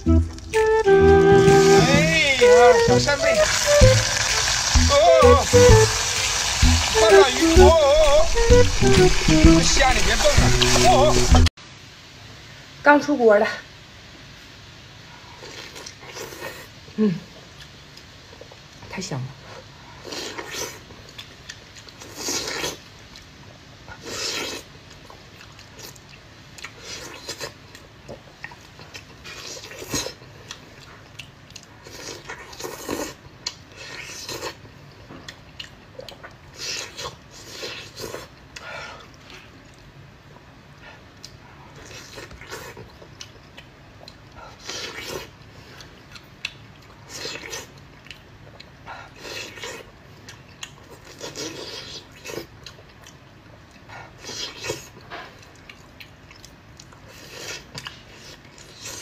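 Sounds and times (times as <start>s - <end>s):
person chewing and sucking food: 15.4s - 16.8s, 19.6s - 59.0s.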